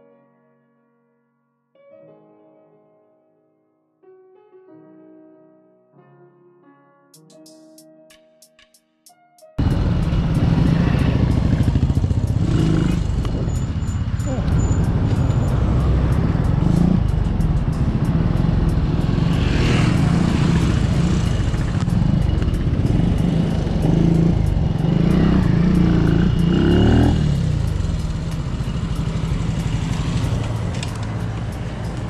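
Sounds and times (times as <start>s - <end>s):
motorcycle engine running: 9.6s - 32.0s.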